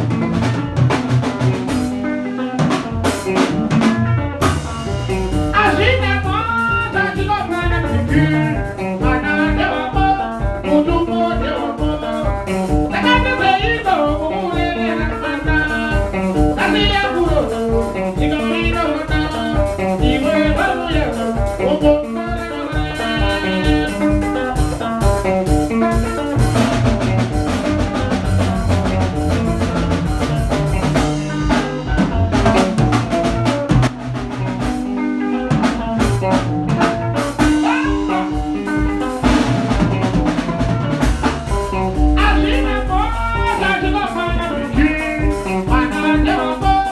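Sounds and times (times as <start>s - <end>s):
drum kit: 0.0s - 46.9s
electric bass: 0.0s - 46.9s
electric guitar: 0.0s - 46.9s
man singing: 5.3s - 25.0s, 37.4s - 38.8s, 41.5s - 46.9s.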